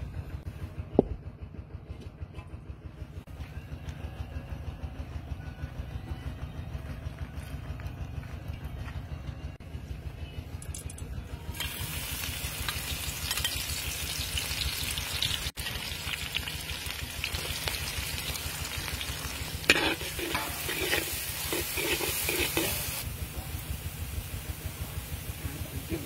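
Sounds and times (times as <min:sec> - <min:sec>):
food sizzling in hot oil: 0:11.5 - 0:26.0
metal ladle scraping a wok: 0:19.0 - 0:23.0
ladle clanking on wok: 0:19.6 - 0:23.0.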